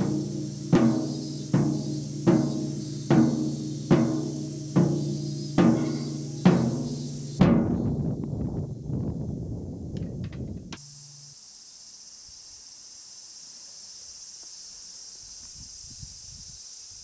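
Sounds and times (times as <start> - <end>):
slow steady drumbeat: 0.0 - 8.6, 10.2 - 11.4.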